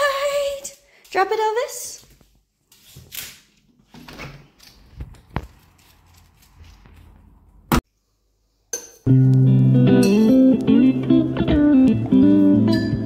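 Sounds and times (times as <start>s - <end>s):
rustling and shuffling: 1.9s - 7.6s.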